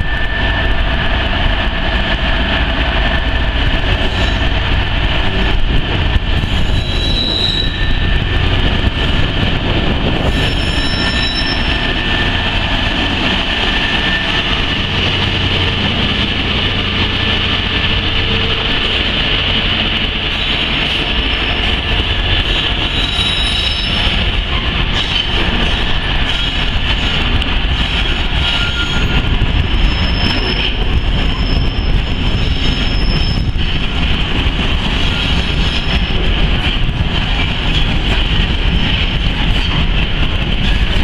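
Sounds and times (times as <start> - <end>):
train wheels rumbling on rail: 0.0 - 41.0
high-pitched wheel squeals: 6.5 - 8.2, 10.2 - 12.4, 22.8 - 24.2, 27.9 - 33.6.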